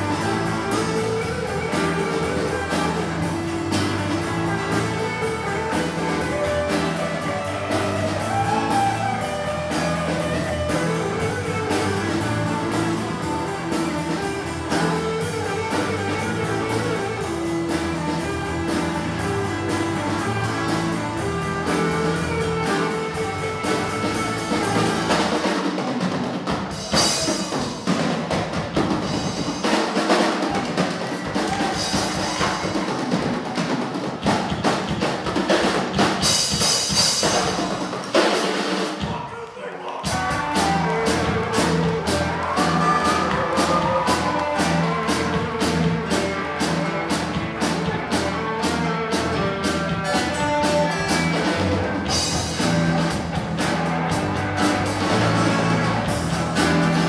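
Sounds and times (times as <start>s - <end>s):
live rock band playing: 0.0s - 39.2s, 40.0s - 57.0s
drum hits: 0.0s - 39.3s, 40.1s - 57.0s.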